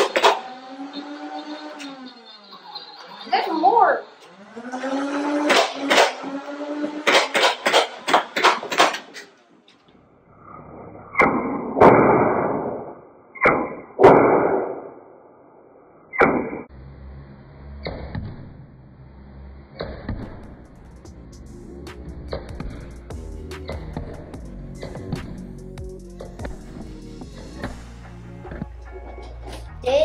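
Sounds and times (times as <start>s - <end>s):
toy dart blaster shots: 0.0s - 2.0s, 3.3s - 9.4s, 11.1s - 15.0s, 16.1s - 16.7s.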